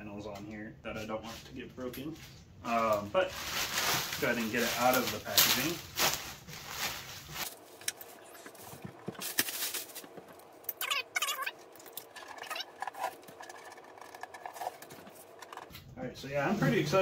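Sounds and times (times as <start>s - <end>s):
plastic wrap crinkling: 3.0s - 15.7s.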